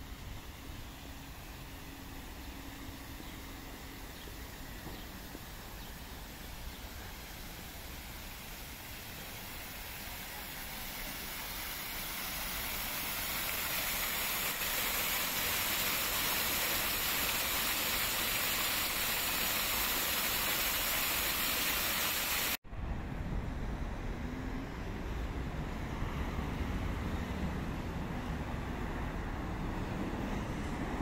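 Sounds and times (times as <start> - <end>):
fountain water splashing: 5.2 - 22.6.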